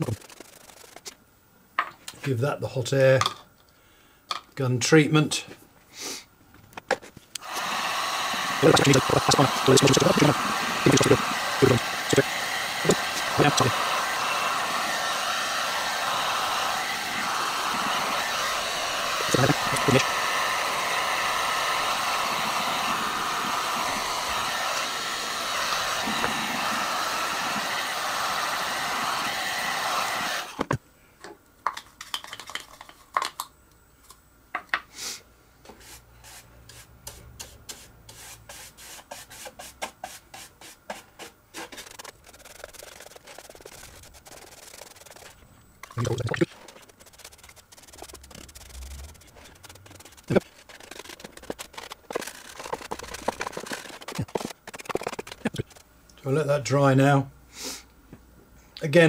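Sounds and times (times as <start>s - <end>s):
hot air gun blowing: 7.4s - 30.6s, 41.6s - 45.4s, 46.0s - 55.8s
paintbrush strokes on wood: 37.7s - 45.4s, 46.0s - 55.8s.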